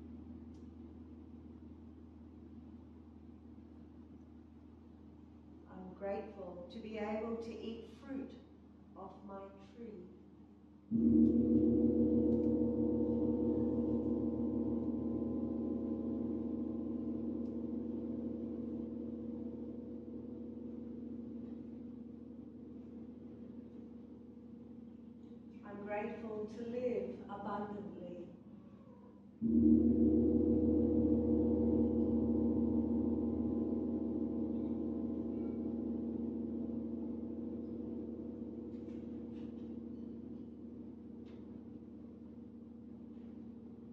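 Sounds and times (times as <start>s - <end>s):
large gong ringing: 10.9s - 25.5s, 29.4s - 43.7s.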